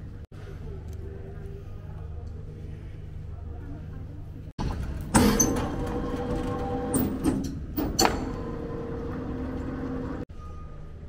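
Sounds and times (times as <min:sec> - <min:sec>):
conveyor belt motor hum: 0:04.6 - 0:10.3.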